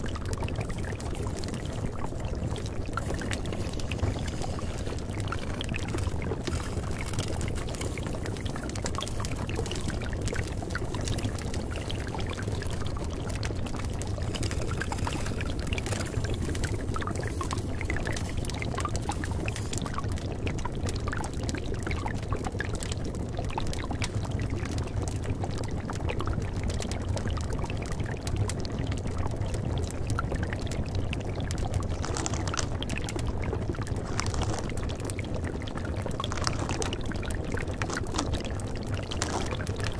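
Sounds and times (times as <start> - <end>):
running water: 0.0 - 20.5, 30.6 - 39.9.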